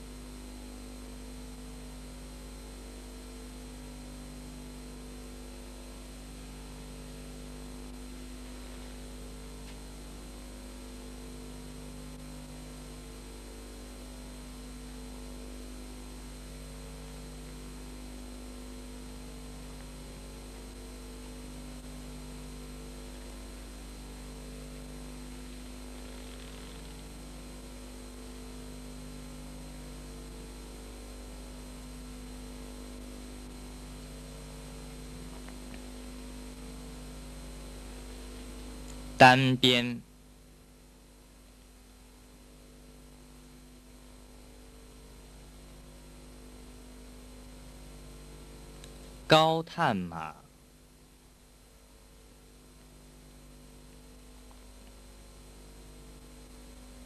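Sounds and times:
electrical hum: 0:00.0 - 0:57.0
recording hiss: 0:07.7 - 0:13.0, 0:34.8 - 0:40.3, 0:48.4 - 0:50.6.

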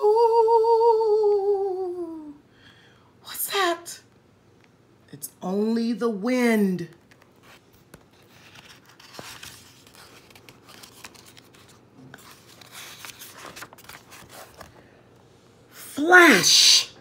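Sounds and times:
paper pages rustling: 0:06.9 - 0:15.0.

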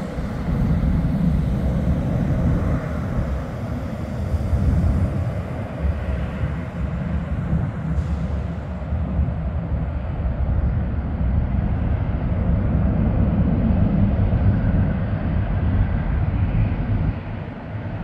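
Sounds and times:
jet airliner climbing rumble: 0:00.0 - 0:18.0.

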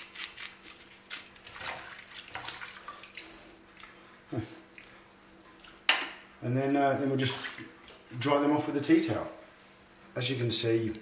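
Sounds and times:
water splashing in sink: 0:01.4 - 0:04.0, 0:07.0 - 0:07.9.

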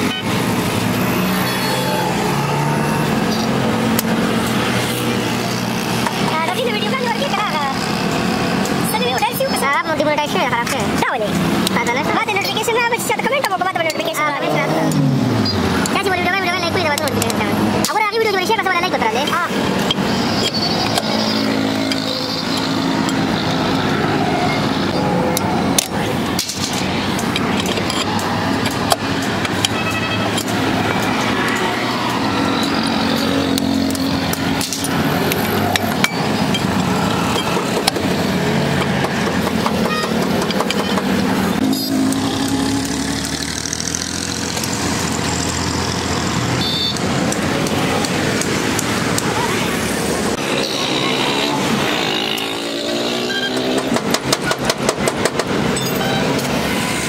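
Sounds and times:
motorcycle engines: 0:00.0 - 0:57.0
road traffic passing: 0:00.0 - 0:57.0
tools knocking on metal: 0:38.8 - 0:41.2.

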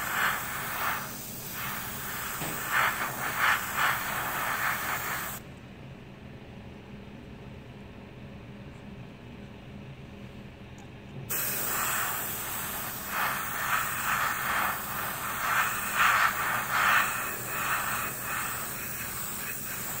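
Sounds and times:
airbrush spraying hiss: 0:00.0 - 0:05.4, 0:11.3 - 0:20.0.

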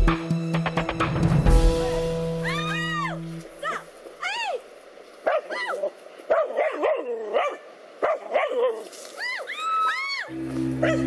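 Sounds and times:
dogs barking and whining: 0:05.3 - 0:08.8, 0:10.8 - 0:11.0.

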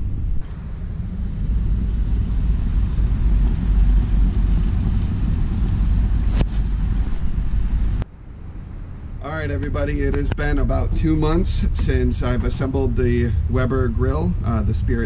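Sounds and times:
wind rumbling on microphone: 0:00.0 - 0:15.0
steady hiss: 0:00.3 - 0:15.0.

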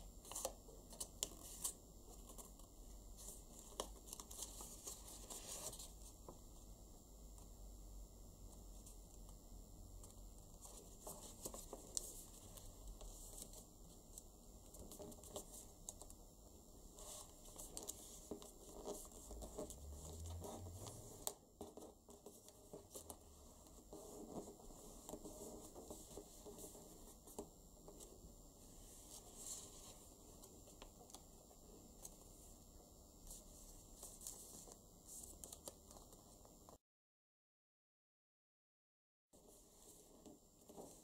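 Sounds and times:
paper rustling and creasing: 0:00.2 - 0:06.4, 0:10.0 - 0:16.1, 0:33.3 - 0:36.4.

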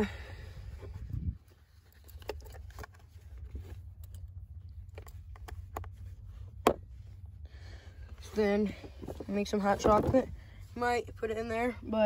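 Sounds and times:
buckles and snaps clicking: 0:01.8 - 0:06.8.

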